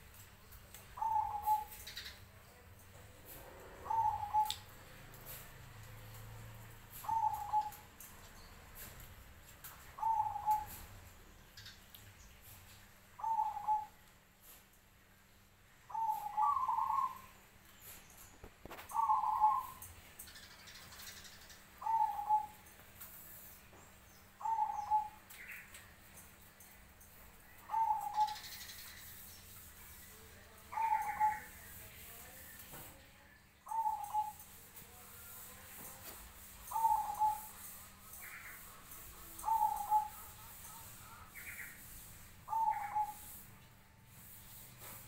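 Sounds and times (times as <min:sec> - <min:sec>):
faint high bird calls: 0:00.9 - 0:02.3, 0:03.7 - 0:05.4, 0:06.9 - 0:09.0, 0:09.8 - 0:11.9, 0:13.2 - 0:14.6, 0:15.9 - 0:22.7, 0:24.1 - 0:26.0, 0:27.5 - 0:31.9, 0:33.6 - 0:35.5, 0:36.6 - 0:43.5
dove cooing: 0:01.0 - 0:02.1, 0:03.5 - 0:05.4, 0:06.8 - 0:07.9, 0:09.9 - 0:10.9, 0:13.2 - 0:14.0, 0:15.9 - 0:17.3, 0:18.7 - 0:19.8, 0:21.8 - 0:22.6, 0:24.4 - 0:25.2, 0:27.6 - 0:28.6, 0:30.7 - 0:31.6, 0:33.7 - 0:34.5, 0:36.7 - 0:37.8, 0:39.3 - 0:40.8, 0:41.5 - 0:43.4.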